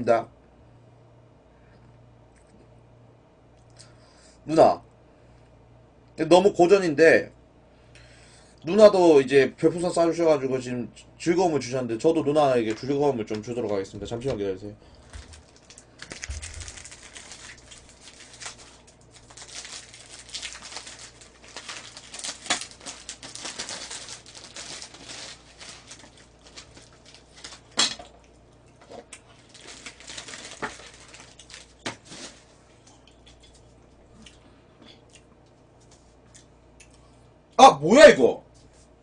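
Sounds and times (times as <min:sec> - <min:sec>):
packaging rustling and tearing: 0:12.6 - 0:27.8, 0:28.9 - 0:32.6
sharp packaging snaps: 0:15.1 - 0:28.0.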